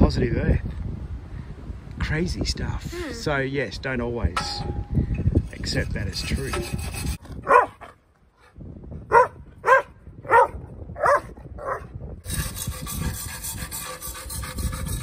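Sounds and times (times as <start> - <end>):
wire brush scrubbing metal: 5.6 - 7.2, 12.2 - 15.0
dog barking: 7.4 - 7.9, 9.1 - 11.9.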